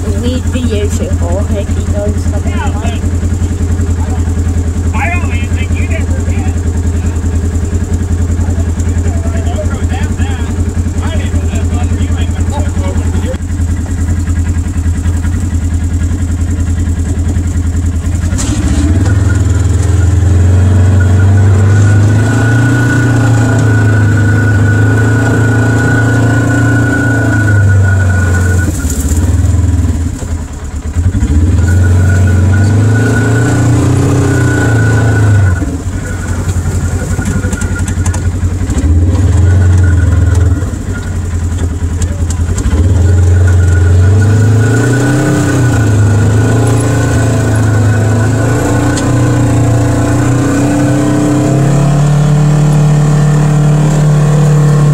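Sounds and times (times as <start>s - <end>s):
engine revving: 0.0s - 54.9s
high whine: 43.0s - 51.8s.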